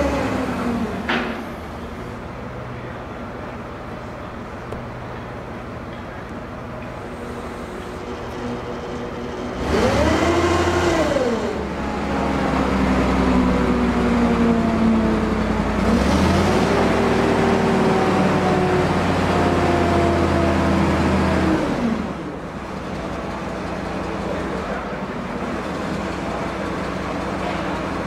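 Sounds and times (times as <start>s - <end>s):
crane engine revving: 0.0s - 28.0s.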